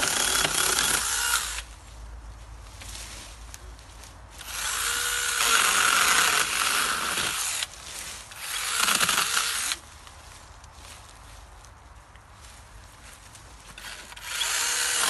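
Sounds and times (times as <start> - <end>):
battery chainsaw cutting wood: 0.0 - 1.7, 4.4 - 7.7, 8.4 - 9.8, 13.8 - 15.0.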